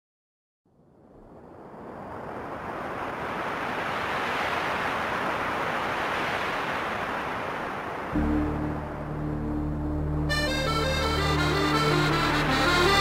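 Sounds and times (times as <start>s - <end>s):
rushing noise: 8.1s - 13.0s.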